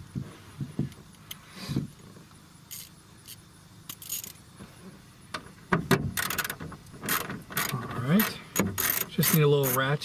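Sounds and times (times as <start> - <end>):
metal hand tools clinking: 7.6 - 9.9.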